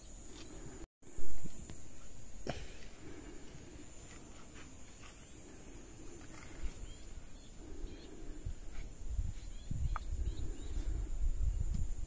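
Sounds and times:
faint bird chirps: 4.8 - 8.5, 9.2 - 11.7.

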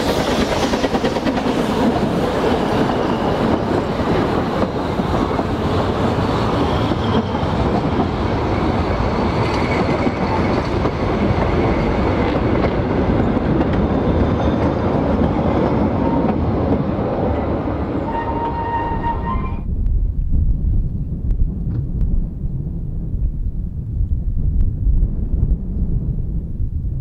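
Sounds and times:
train wheels clattering over rail joints: 0.0 - 16.9
faint thin squeal: 18.0 - 19.6.

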